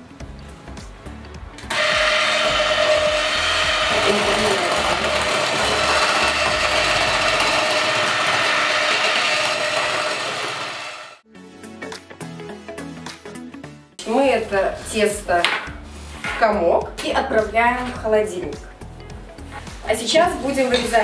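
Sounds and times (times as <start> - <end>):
electric hand mixer whining: 1.7 - 11.2.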